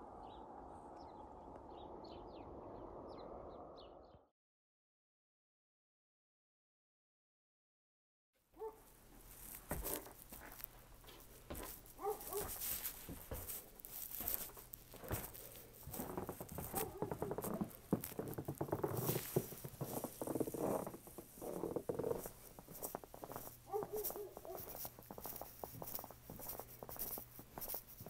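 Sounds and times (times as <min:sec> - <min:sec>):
footsteps crunching in snow: 0:08.6 - 0:28.0.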